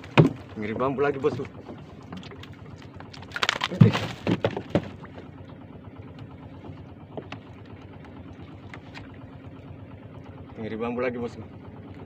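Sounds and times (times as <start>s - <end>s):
fish thudding against wooden hull: 0.0s - 5.5s.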